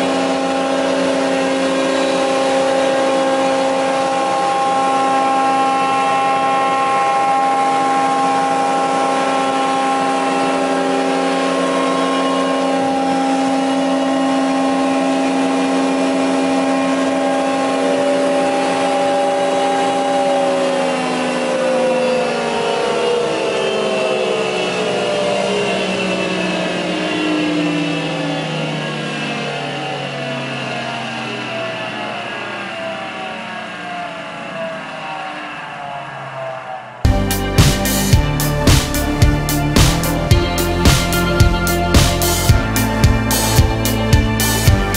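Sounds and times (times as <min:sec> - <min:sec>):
jointer-planer whining: 0:00.0 - 0:23.4, 0:37.1 - 0:44.9.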